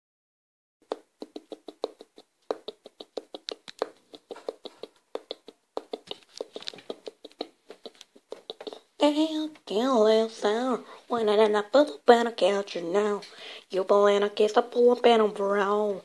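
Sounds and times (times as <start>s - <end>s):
sharp hollow percussive taps: 0.8s - 8.8s.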